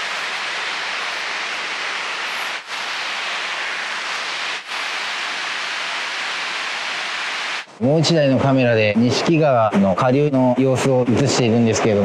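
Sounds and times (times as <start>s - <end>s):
water rushing over rapids: 0.0s - 7.7s.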